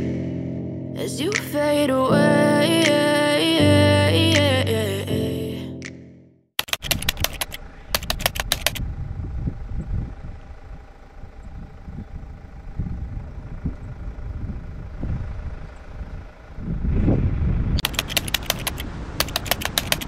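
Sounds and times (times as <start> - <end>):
rapid sharp clicks: 6.6 - 8.8, 17.8 - 20.0
low rumble with faint hum: 7.6 - 17.8.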